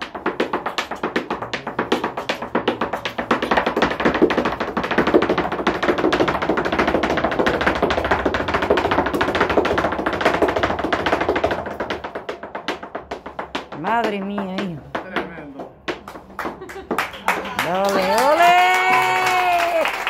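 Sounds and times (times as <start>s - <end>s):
shoes stamping on stage: 0.0s - 20.0s.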